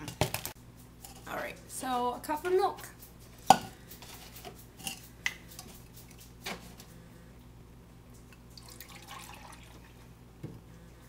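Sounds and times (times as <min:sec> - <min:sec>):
milk pouring into a cup: 0:08.5 - 0:10.1.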